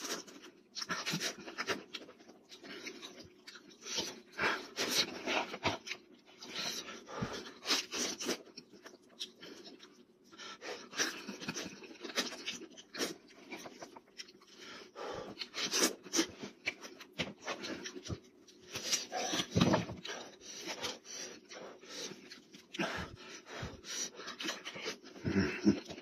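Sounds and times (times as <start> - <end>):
person chewing and lip-smacking: 0.0 - 26.0
breaths: 20.0 - 25.4.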